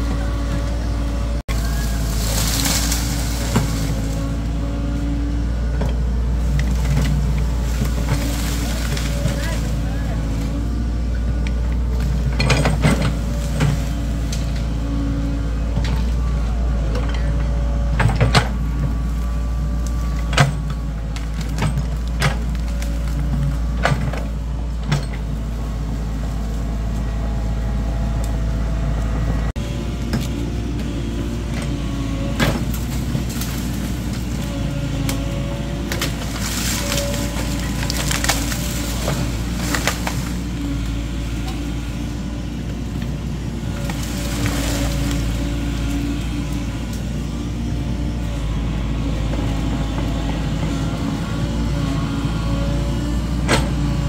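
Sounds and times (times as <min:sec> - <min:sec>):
excavator diesel engine: 0:00.0 - 0:54.0.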